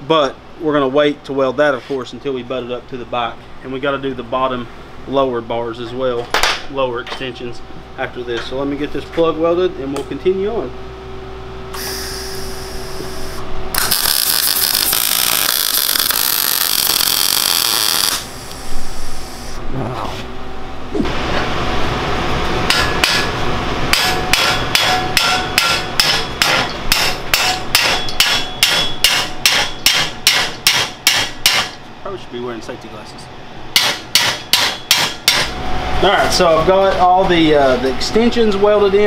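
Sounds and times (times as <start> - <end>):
welder hissing: 11.7 - 19.6
hammer striking steel tube: 22.7 - 23.3, 23.9 - 31.8, 33.7 - 35.6.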